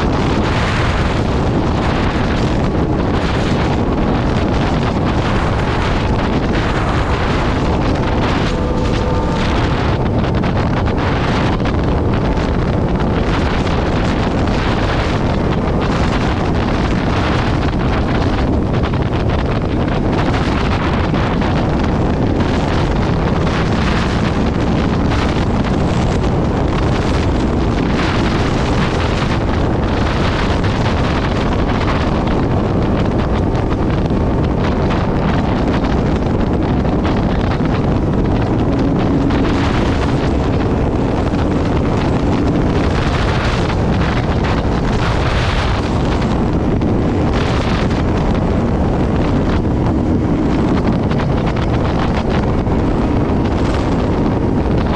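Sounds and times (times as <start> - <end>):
motorcycle engine: 0.0 - 54.9
wind buffeting microphone: 0.0 - 54.9.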